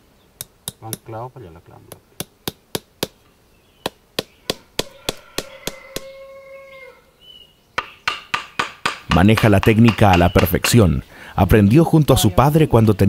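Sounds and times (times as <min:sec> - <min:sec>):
hammer tapping horseshoe nails: 0:04.5 - 0:06.1, 0:07.8 - 0:11.0.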